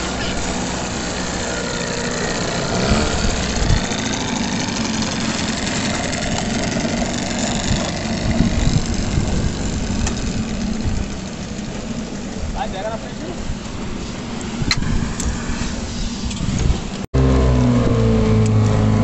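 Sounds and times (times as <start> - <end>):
small outboard motor running: 0.0 - 12.6, 17.2 - 19.0.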